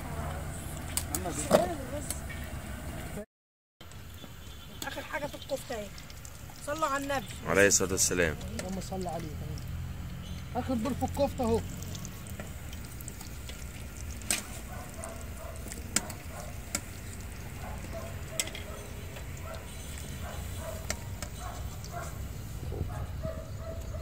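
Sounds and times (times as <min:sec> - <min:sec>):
food frying in oil: 0:03.8 - 0:22.7
metal skimmer clinking on pot: 0:13.5 - 0:22.2.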